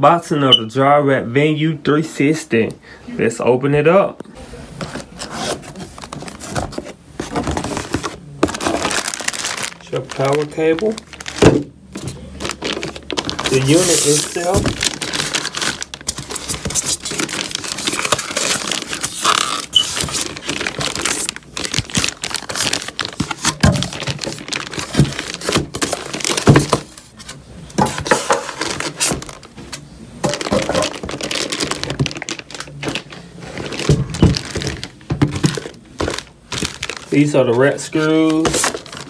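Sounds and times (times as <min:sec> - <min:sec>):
plastic bag crinkling: 0:07.2 - 0:27.1, 0:28.5 - 0:29.5, 0:30.2 - 0:39.0.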